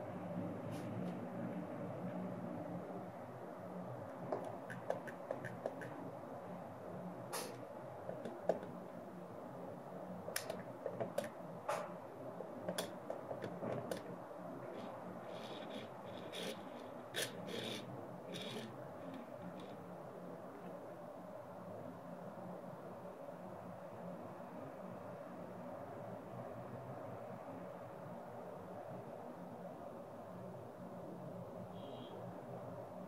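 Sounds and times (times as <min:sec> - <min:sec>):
toy car clicking: 0:15.3 - 0:19.8.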